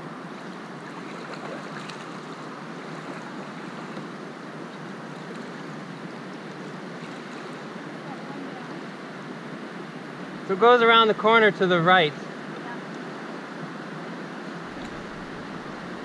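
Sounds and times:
faint water splashes: 0:00.0 - 0:10.5, 0:12.0 - 0:16.0
river water rushing: 0:00.0 - 0:16.0.

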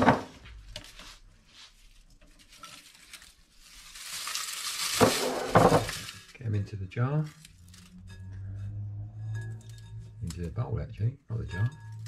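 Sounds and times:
dried vegetable pieces rustling: 0:00.6 - 0:08.8.

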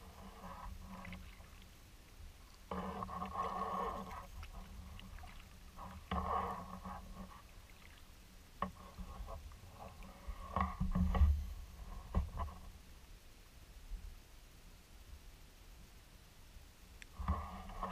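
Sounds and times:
kayak paddle swishing through water: 0:00.0 - 0:12.8, 0:17.1 - 0:17.9.

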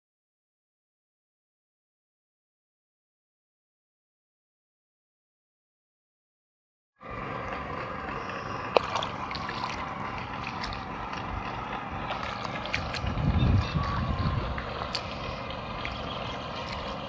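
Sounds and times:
low rumble: 0:07.0 - 0:17.0
rice transplanter running: 0:07.0 - 0:17.0
water sloshing: 0:07.0 - 0:17.0.

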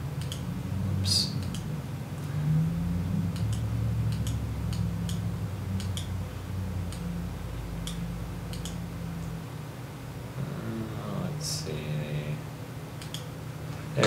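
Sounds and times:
steady low hum: 0:00.0 - 0:14.0
computer mouse clicking: 0:00.2 - 0:00.5, 0:01.4 - 0:01.7, 0:03.3 - 0:06.2, 0:07.8 - 0:08.8, 0:13.0 - 0:13.3.

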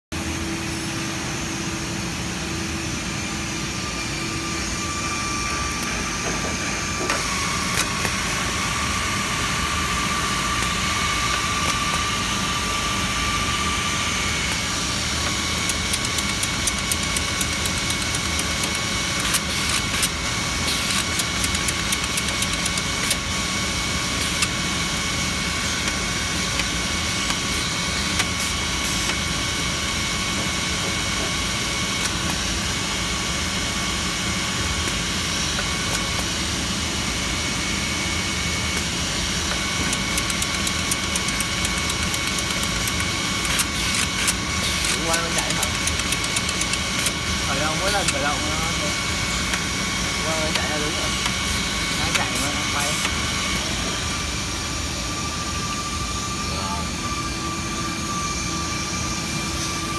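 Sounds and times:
router machine hum: 0:00.2 - 0:59.9
faint high whine: 0:51.9 - 0:59.9.

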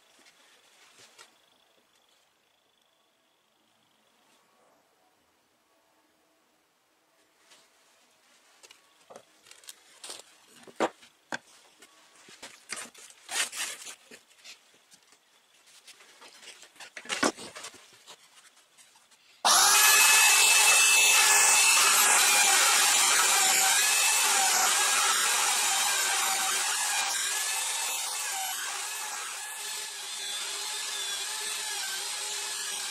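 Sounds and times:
belt sander whining: 0:19.5 - 0:32.9.

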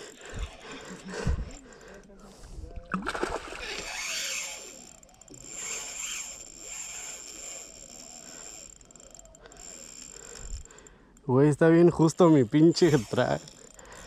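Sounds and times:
water splash: 0:02.9 - 0:03.7
fishing reel drag clicking: 0:03.4 - 0:14.0.

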